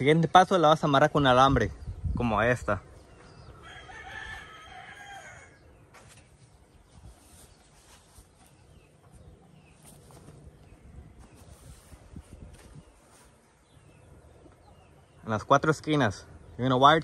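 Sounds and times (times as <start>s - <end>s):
faint rooster crowing: 3.4s - 5.7s.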